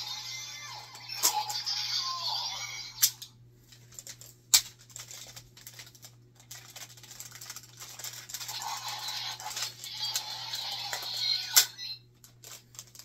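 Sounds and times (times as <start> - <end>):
faint electronic toy sound: 0.0 - 3.2, 8.3 - 12.1.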